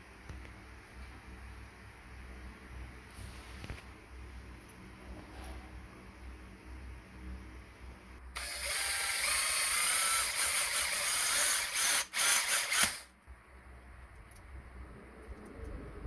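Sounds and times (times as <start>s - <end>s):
cordless drill running: 8.4s - 13.1s.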